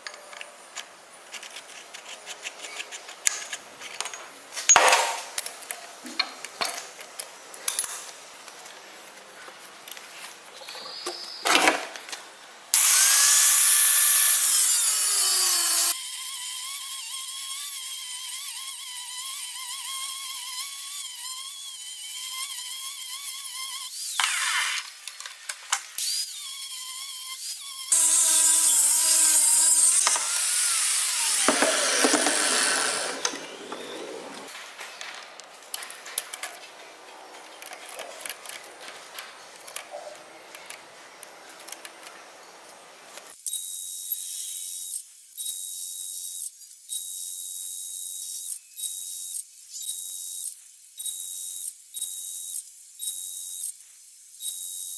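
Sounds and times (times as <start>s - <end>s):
angle grinder cutting steel: 12.8s - 25.0s, 26.0s - 34.5s.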